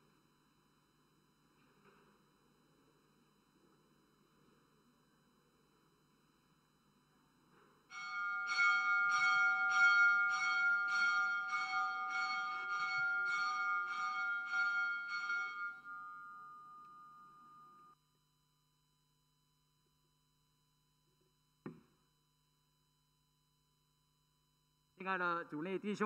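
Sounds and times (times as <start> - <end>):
bell ringing: 7.9 - 18.0.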